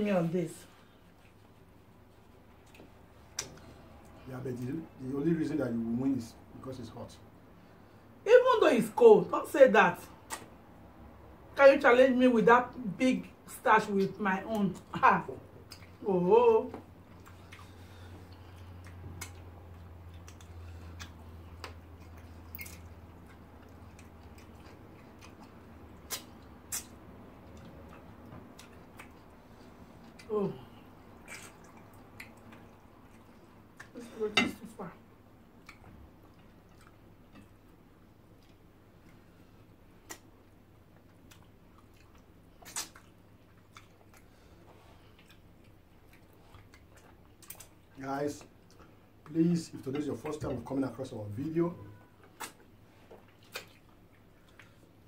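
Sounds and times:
faint low hum: 0:00.0 - 0:55.0
chewing and mouth smacks: 0:01.0 - 0:04.2, 0:10.2 - 0:10.8, 0:15.6 - 0:16.0, 0:16.8 - 0:30.3, 0:31.0 - 0:34.0, 0:35.4 - 0:49.3, 0:52.1 - 0:55.0.

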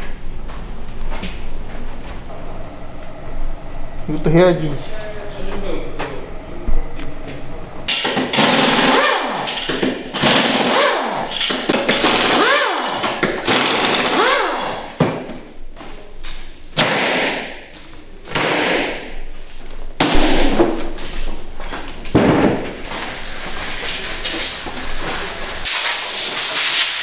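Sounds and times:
pneumatic air tool running: 0:07.9 - 0:14.9.

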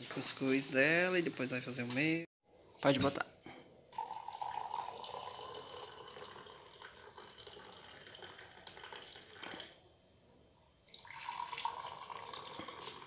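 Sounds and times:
coffee pouring into a mug: 0:03.8 - 0:09.8, 0:10.9 - 0:13.0.

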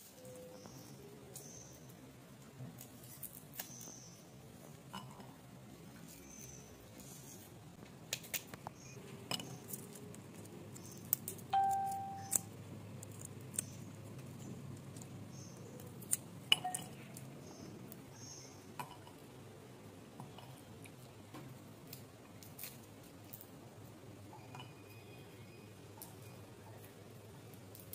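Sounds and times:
brief ringing tone: 0:11.6 - 0:12.3.

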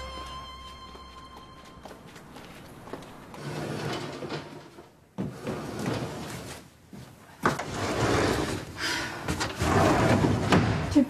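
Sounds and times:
wooden sliding doors rattling open: 0:07.4 - 0:11.0.

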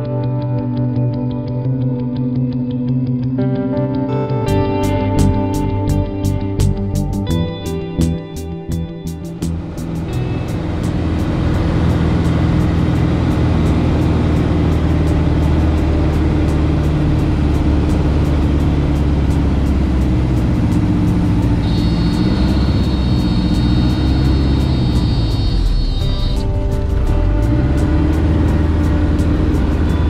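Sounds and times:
high steady tone: 0:07.2 - 0:30.0
aircraft propeller engine in cabin: 0:09.5 - 0:30.0.

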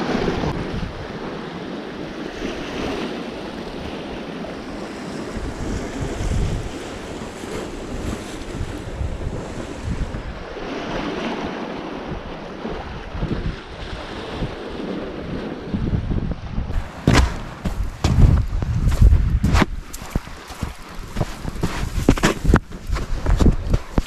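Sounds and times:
wind buffeting microphone: 0:00.0 - 0:01.4, 0:02.3 - 0:24.0
waves washing against rocks: 0:16.7 - 0:24.0.

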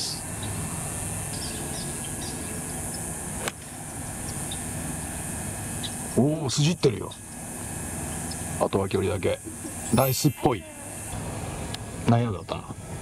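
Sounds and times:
outdoor background noise: 0:00.0 - 0:13.0
golf club striking ball: 0:03.4 - 0:03.7.

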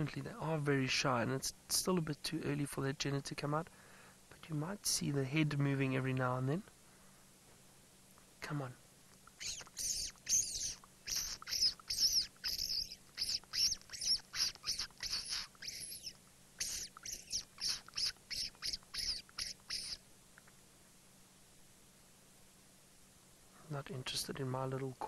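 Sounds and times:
person making squeaking calls: 0:09.3 - 0:20.0.

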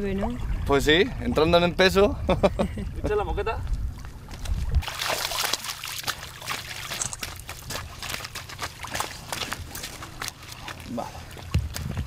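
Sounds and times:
water splashing off a landing net: 0:04.8 - 0:11.9.

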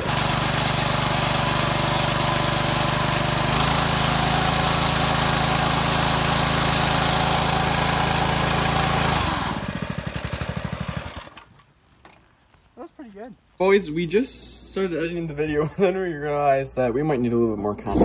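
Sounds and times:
engine winding down: 0:00.0 - 0:11.5
small engine running: 0:00.0 - 0:11.5.

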